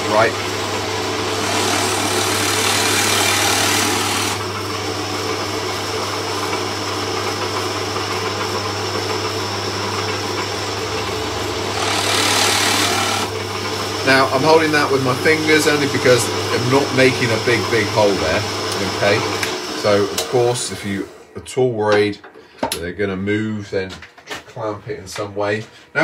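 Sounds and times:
drill bit cutting wood: 0:00.0 - 0:04.5, 0:11.1 - 0:20.6
drill press humming: 0:00.0 - 0:21.3.

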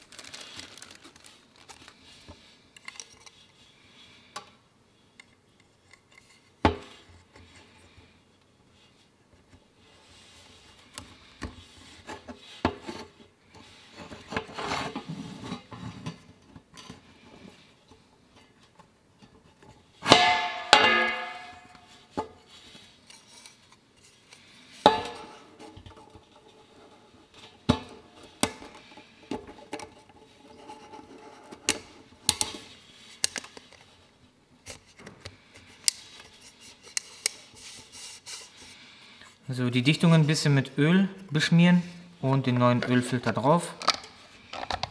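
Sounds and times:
plastic parts clicking and rubbing: 0:00.0 - 0:03.6, 0:28.2 - 0:34.0, 0:34.6 - 0:38.6, 0:43.8 - 0:44.9
parts hitting metal pan: 0:20.0 - 0:21.8, 0:24.8 - 0:25.4.

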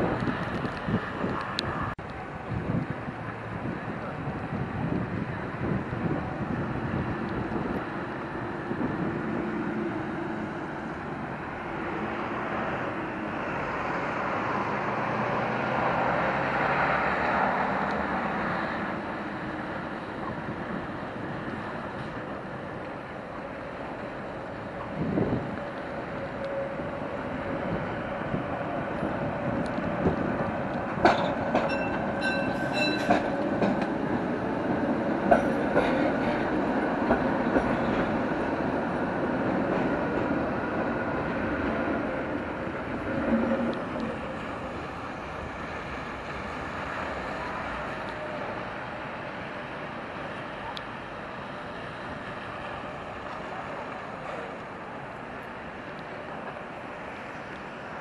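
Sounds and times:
tram rumbling on rails: 0:00.0 - 0:58.0.

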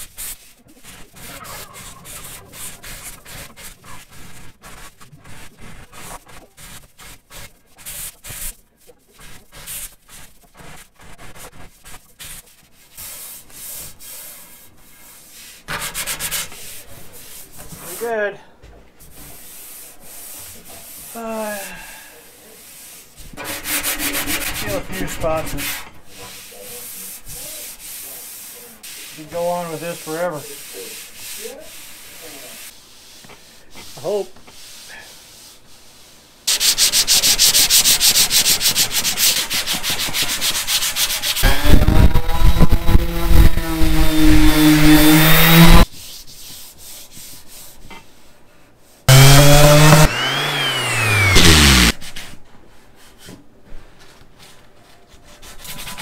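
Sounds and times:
hand sanding metal: 0:00.0 - 0:18.2, 0:19.3 - 0:21.2, 0:22.6 - 0:47.8, 0:49.1 - 0:52.3
power sander running: 0:41.4 - 0:45.8, 0:49.1 - 0:52.0.

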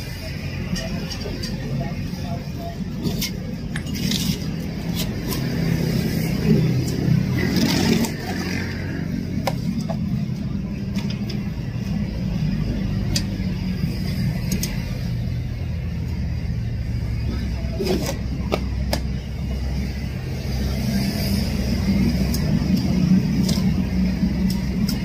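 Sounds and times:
low mechanical drone: 0:00.0 - 0:25.0.

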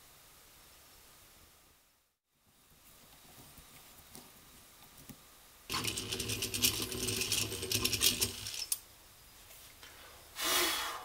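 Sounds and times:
hand drill whirring and clicking: 0:05.7 - 0:08.8
short hiss: 0:10.4 - 0:11.0.

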